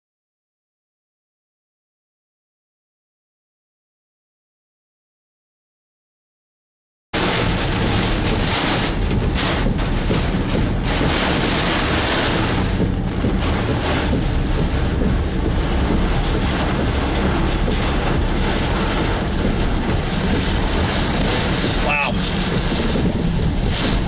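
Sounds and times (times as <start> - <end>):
heavy rain on a car: 7.2 - 24.0
strong wind gusts: 7.2 - 24.0.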